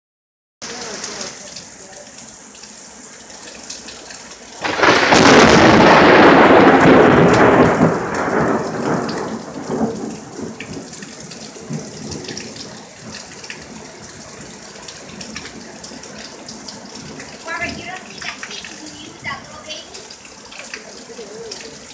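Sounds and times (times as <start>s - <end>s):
steady rain: 0.6s - 21.9s
thunder clap rumbling: 4.6s - 15.4s.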